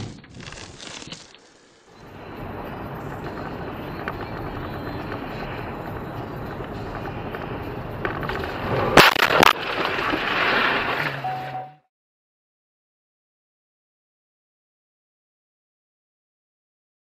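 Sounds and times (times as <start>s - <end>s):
car driving on snow: 1.5s - 11.7s
loud car crash: 2.3s - 11.8s.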